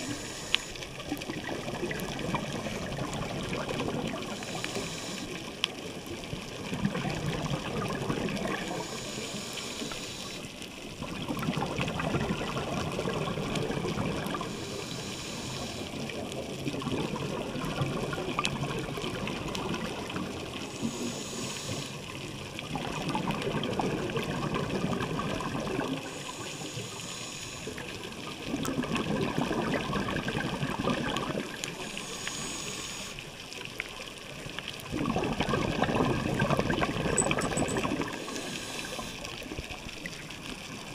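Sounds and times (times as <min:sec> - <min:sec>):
hissing regulator inhale: 0:00.0 - 0:01.0, 0:04.3 - 0:05.5, 0:08.5 - 0:10.6, 0:14.3 - 0:16.1, 0:20.6 - 0:22.2, 0:25.9 - 0:28.1, 0:31.7 - 0:33.4, 0:37.5 - 0:39.5
bubbling exhaled air: 0:00.0 - 0:05.6, 0:06.6 - 0:33.2, 0:34.8 - 0:40.2.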